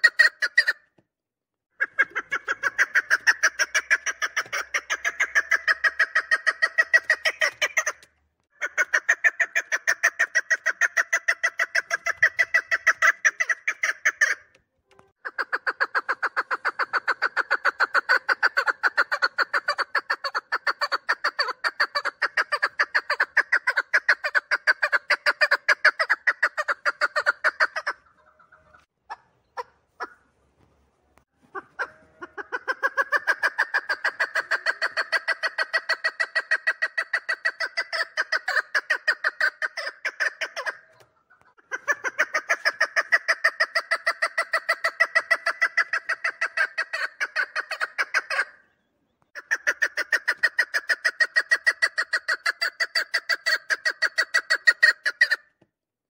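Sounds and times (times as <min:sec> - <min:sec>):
partridge calling chuk notes: 0:01.8 - 0:30.2.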